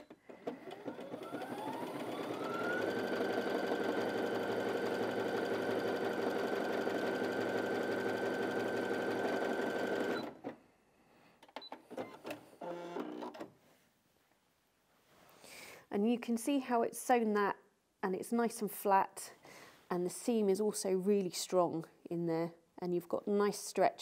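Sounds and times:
sewing machine stitching: 0.0 - 10.6.

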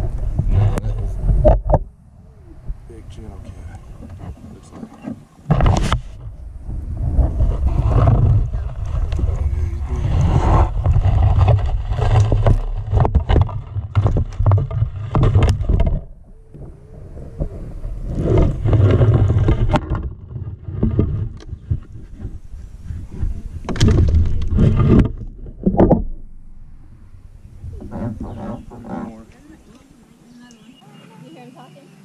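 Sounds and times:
knocks and thumps in a boat: 0.0 - 1.9, 3.6 - 16.7, 17.3 - 26.3.

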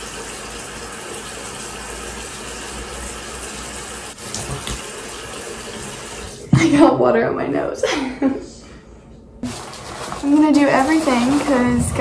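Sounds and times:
tap running: 4.2 - 4.9.

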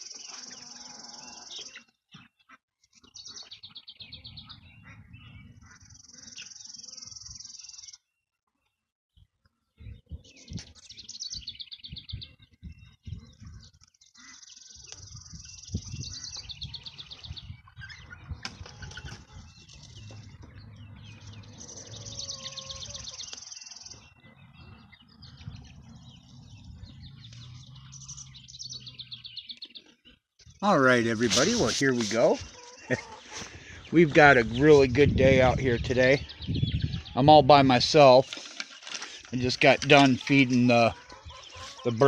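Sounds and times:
birds chirping in trills: 0.0 - 42.0
chickens rustling and clucking: 15.8 - 28.2, 30.6 - 34.8, 36.9 - 42.0.

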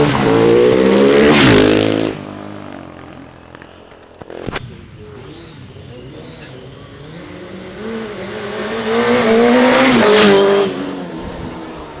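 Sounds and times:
racing motorcycle passing at speed: 0.0 - 3.6, 4.2 - 12.0.

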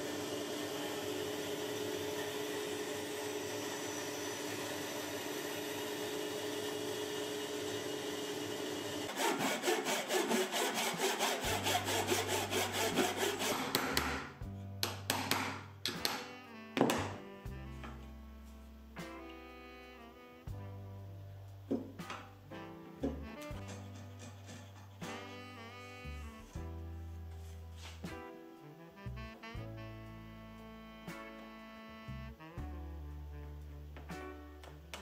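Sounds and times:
bandsaw cutting wood: 0.0 - 14.4, 23.5 - 25.5.

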